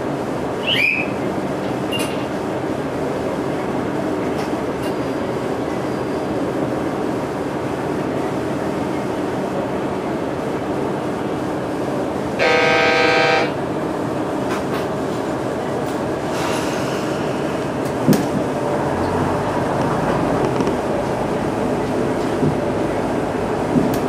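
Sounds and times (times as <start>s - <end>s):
diesel engine drone: 10.6s - 15.8s, 16.4s - 24.0s
train horn: 12.4s - 13.6s
wheel-on-rail rumble: 13.7s - 24.0s.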